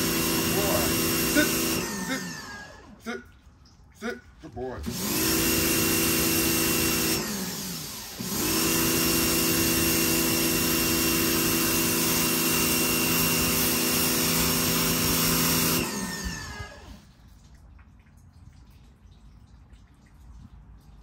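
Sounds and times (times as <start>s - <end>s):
pressure washer motor humming: 0.0s - 3.1s, 4.6s - 17.1s
water jet hissing: 0.0s - 3.2s, 4.0s - 17.1s.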